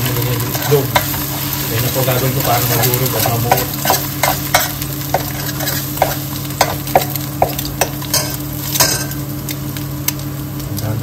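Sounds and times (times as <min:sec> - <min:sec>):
egg sizzling in oil: 0:00.0 - 0:10.7
metal utensil scraping pan: 0:02.7 - 0:07.1.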